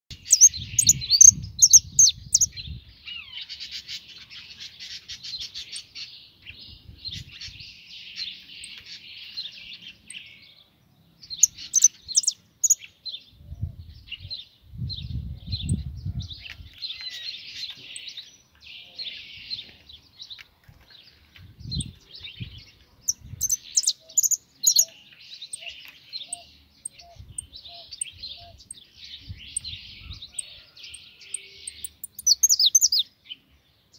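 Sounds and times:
goldfinch twittering song: 0.1 - 10.5, 11.2 - 13.2, 21.0 - 33.1.

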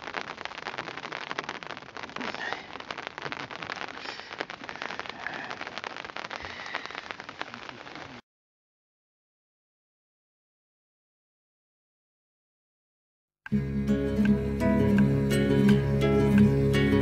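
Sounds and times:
rain on tent fabric: 0.0 - 8.2.

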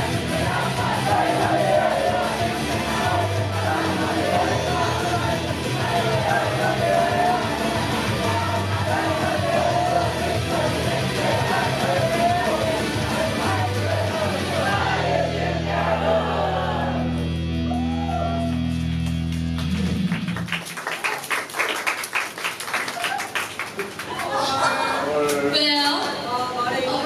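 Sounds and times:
live pop rock song with singing: 0.0 - 15.2
audience applause: 18.2 - 24.5.

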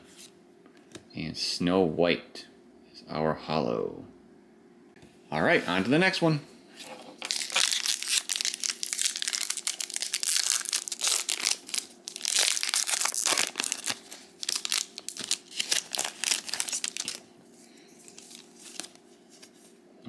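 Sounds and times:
foil wrapper crinkling: 7.2 - 17.3, 18.0 - 19.6.

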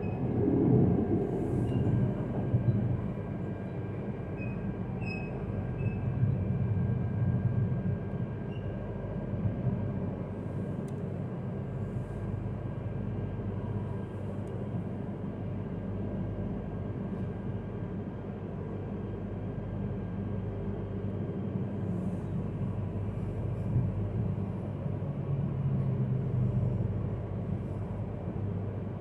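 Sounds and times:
train cabin rumble: 0.0 - 8.5.

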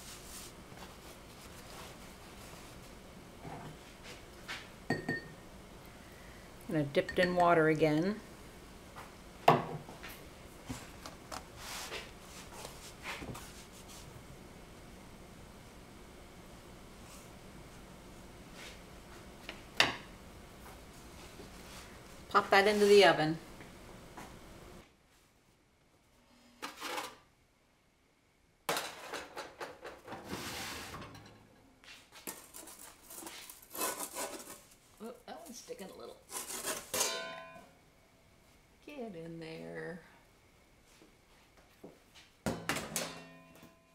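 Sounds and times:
blade scraping dough: 32.3 - 34.8, 36.3 - 37.0.

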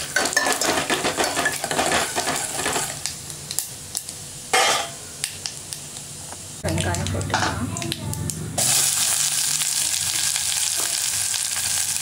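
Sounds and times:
seeds spluttering in hot oil: 7.8 - 12.0.

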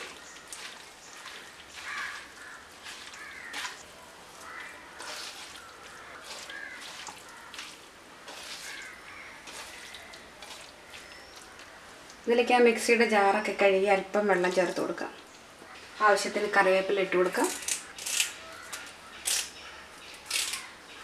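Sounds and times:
hand kneading wet mixture: 0.0 - 12.2
bird calling: 4.4 - 7.7.

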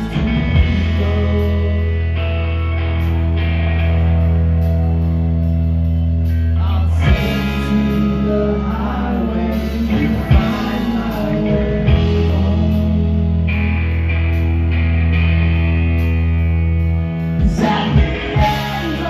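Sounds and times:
man singing: 0.0 - 2.7, 6.4 - 13.6, 17.4 - 19.0
rock band playing: 0.0 - 19.0.

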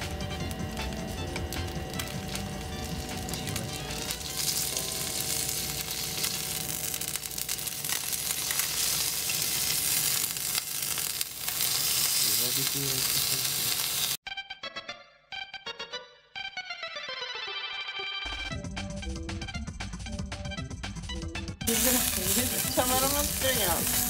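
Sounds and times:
music: 0.0 - 7.2, 14.2 - 24.0
fish sizzling in oil: 0.0 - 14.2, 21.7 - 24.0.

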